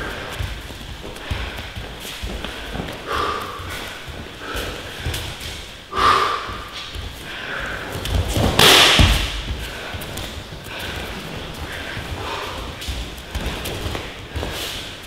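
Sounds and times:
sharp breaths: 0.0s - 15.0s
thuds on training mats: 7.7s - 14.6s.

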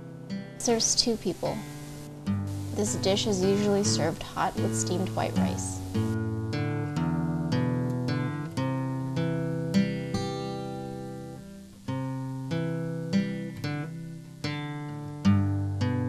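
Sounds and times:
guitar chords strummed: 0.0s - 16.0s.

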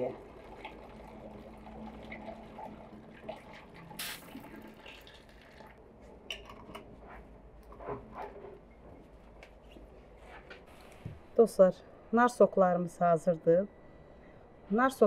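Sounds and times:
liquid trickling through funnel: 0.0s - 5.8s
splashing hiss: 4.0s - 4.3s.

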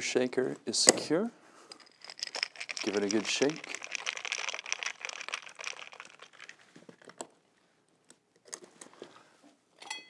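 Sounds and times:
ice rattling in cocktail shaker: 1.8s - 7.2s.

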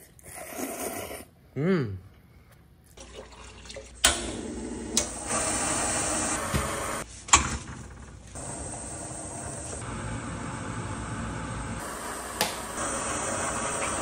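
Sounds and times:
water pouring into metal pot: 3.0s - 4.0s
water boiling: 8.5s - 14.0s.

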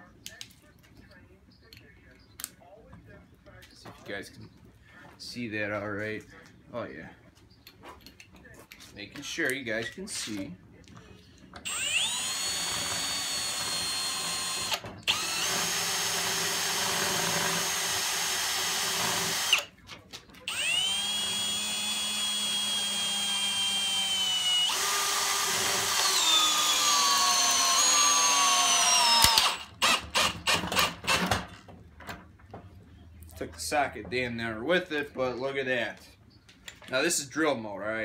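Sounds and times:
hammer drill driving screw into wood: 11.6s - 19.7s, 20.5s - 31.5s
drill clutch click: 20.5s - 31.3s.

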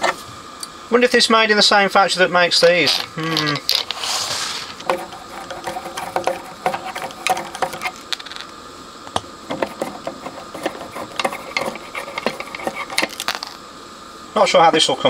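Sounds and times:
small metallic clicks and scrapes: 9.5s - 13.6s.

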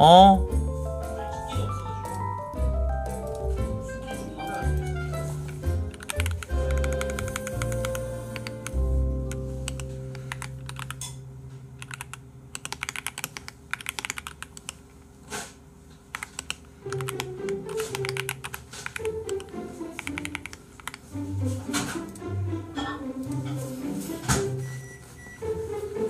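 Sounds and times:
background music: 0.0s - 11.0s, 16.8s - 26.0s
typing on computer keyboard: 5.9s - 8.8s, 9.7s - 11.1s, 11.8s - 14.8s, 16.1s - 21.0s.

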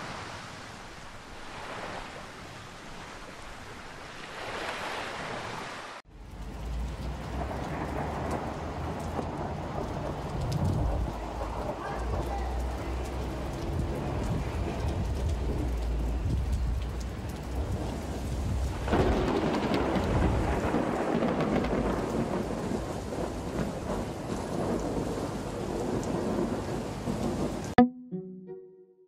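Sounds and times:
steady rain: 0.0s - 27.8s
thunder rumbling: 6.2s - 27.8s
string music: 27.8s - 29.0s.

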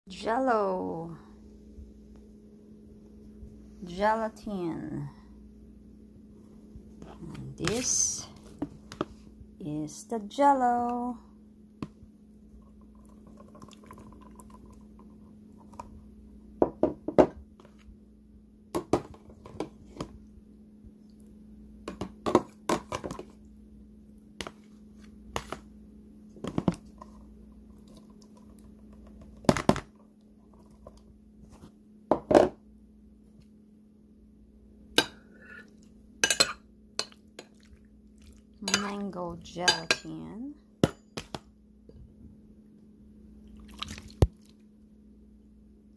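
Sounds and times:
steady low hum: 0.1s - 45.9s
metal spoon clinking on plastic: 38.6s - 39.0s.

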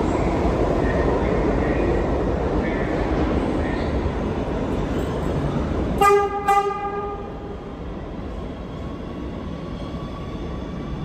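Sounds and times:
train running noise: 0.0s - 11.0s
subway train horn blasts: 5.9s - 7.5s.

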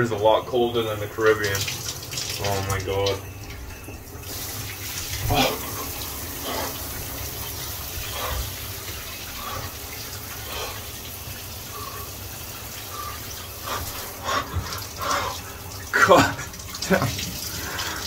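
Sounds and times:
shower spray running: 4.2s - 18.0s.

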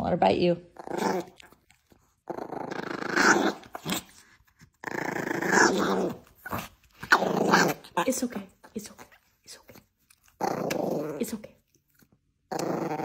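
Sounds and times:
small dog growling: 0.7s - 8.1s, 9.0s - 11.5s, 12.5s - 13.0s.

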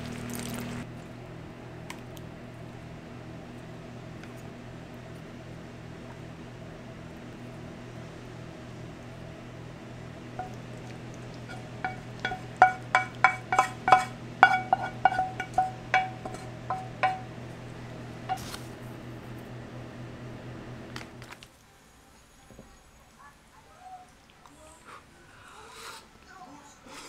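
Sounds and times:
low steady hum: 0.0s - 21.7s
cookware clinking: 10.4s - 10.8s, 11.4s - 17.4s.

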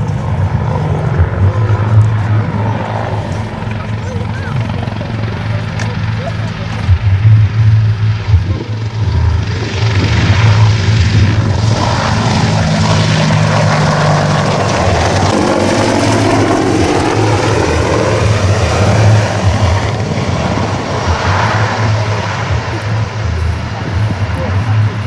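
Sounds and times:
helicopter rotor and engines: 0.0s - 25.0s.

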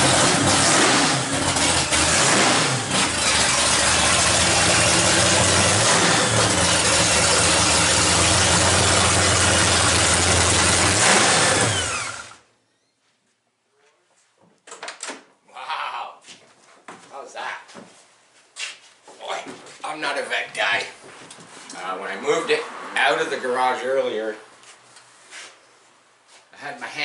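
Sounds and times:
loud car engine running: 0.0s - 12.4s.

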